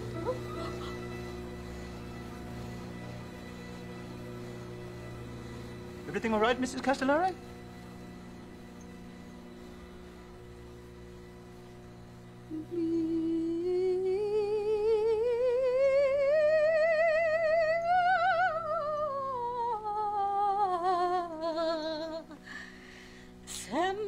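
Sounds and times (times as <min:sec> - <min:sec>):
steady low hum: 0:00.0 - 0:24.0
woman singing operatic note: 0:12.5 - 0:22.3.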